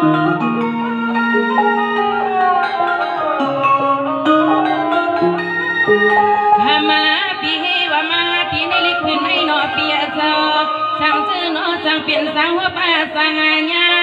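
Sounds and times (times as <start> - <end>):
band playing: 0.0 - 12.0
woman singing: 6.6 - 14.0.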